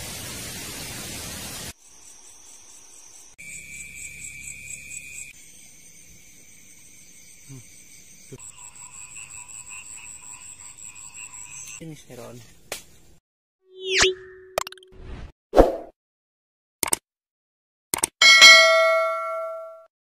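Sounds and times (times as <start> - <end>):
loud even hiss: 0.0 - 1.8
insects trilling: 1.7 - 12.4
frogs calling: 3.5 - 11.8.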